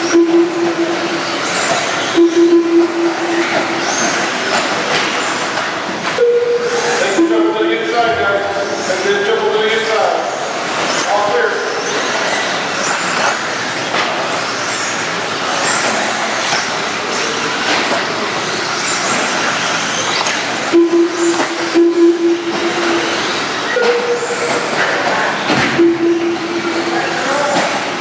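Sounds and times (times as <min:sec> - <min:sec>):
horn-like tone: 0:00.0 - 0:01.3, 0:02.2 - 0:03.7, 0:20.7 - 0:24.7, 0:25.8 - 0:27.2
higher tone: 0:00.0 - 0:01.4, 0:02.1 - 0:03.9, 0:20.7 - 0:24.8, 0:25.8 - 0:27.4
rc car motors whining: 0:03.3 - 0:05.9, 0:08.6 - 0:21.7.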